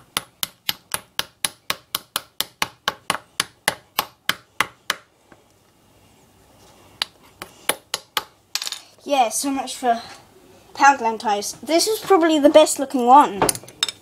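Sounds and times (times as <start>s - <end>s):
tool tapping on plaster: 0.1s - 5.1s.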